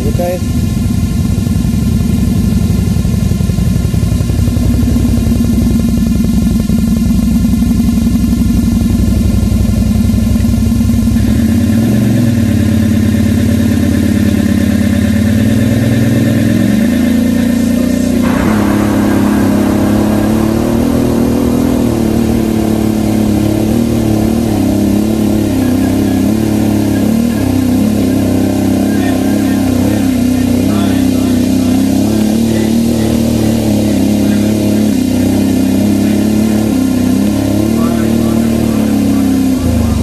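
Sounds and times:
atv engine running: 0.0s - 40.0s
rushing noise: 4.1s - 7.6s, 17.7s - 40.0s.

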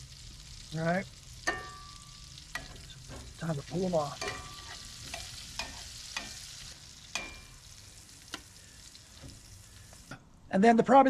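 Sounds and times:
butter sizzling in a skillet: 0.0s - 10.4s
metal tongs clinking on pan: 1.3s - 8.5s.

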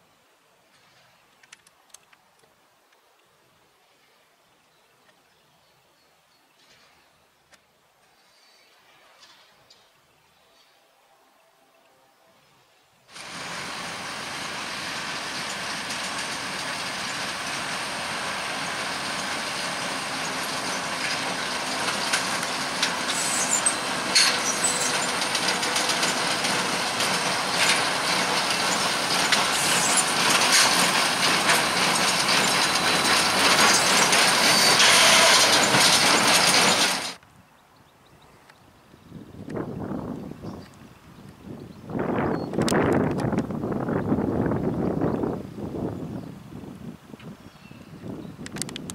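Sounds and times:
baler mechanical clatter: 13.2s - 37.2s.

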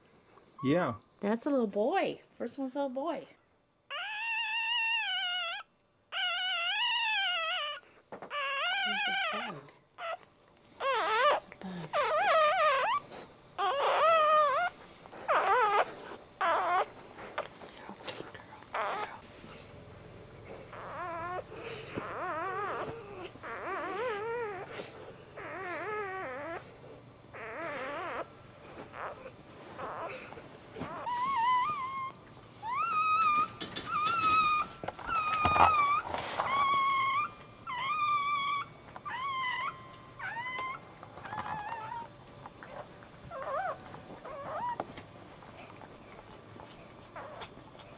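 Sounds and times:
puppy squealing: 3.9s - 17.0s, 18.7s - 19.2s, 20.6s - 26.7s, 27.3s - 28.3s, 28.9s - 44.8s, 47.2s - 47.6s.

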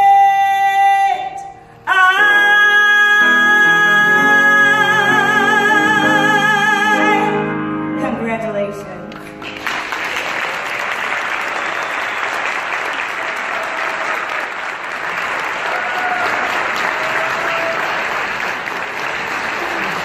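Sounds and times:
large audience applauding: 9.1s - 20.0s.

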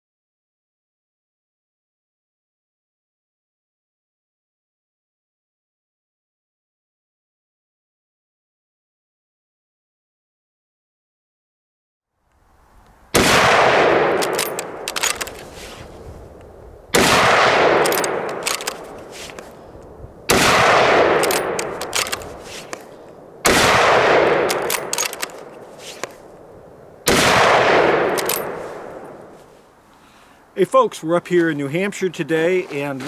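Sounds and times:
rifle shots: 13.1s - 15.5s, 16.9s - 19.3s, 20.3s - 22.7s, 23.4s - 25.7s, 27.0s - 29.2s
rifle bolt clicks: 14.1s - 15.5s, 17.7s - 19.5s, 21.1s - 22.9s, 24.1s - 26.2s, 27.9s - 28.6s.

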